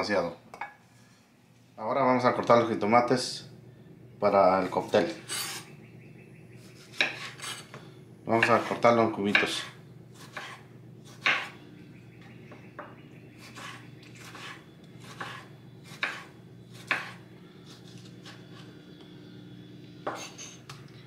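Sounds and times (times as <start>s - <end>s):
faint steady hum: 0.0s - 21.0s
knife chopping on cutting board: 6.8s - 7.8s, 8.4s - 11.6s, 12.8s - 17.2s.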